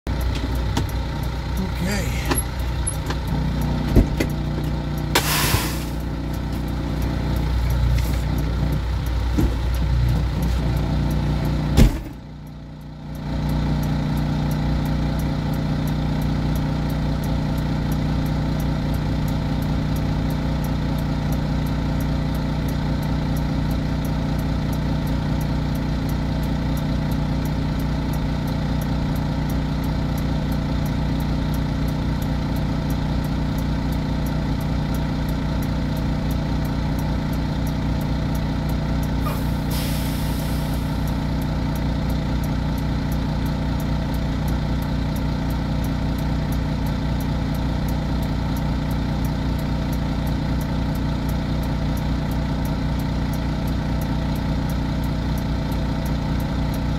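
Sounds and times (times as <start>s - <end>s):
diesel truck engine idling: 0.1s - 56.9s
sharp click: 5.1s - 6.7s
short burst of hiss: 5.2s - 6.0s.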